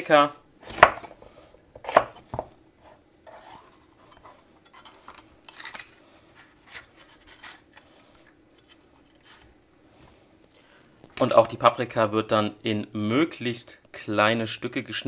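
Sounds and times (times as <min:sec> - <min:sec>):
knife cutting on wooden board: 0:01.8 - 0:04.3.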